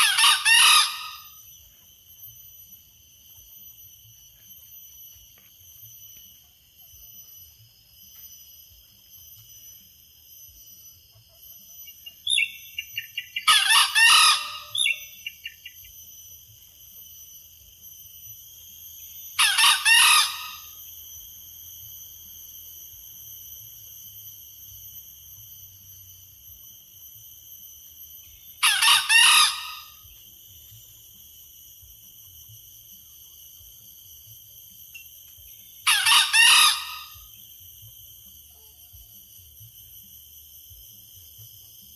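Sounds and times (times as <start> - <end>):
rooster crowing: 13.4 - 14.9, 28.6 - 30.0, 35.8 - 37.2.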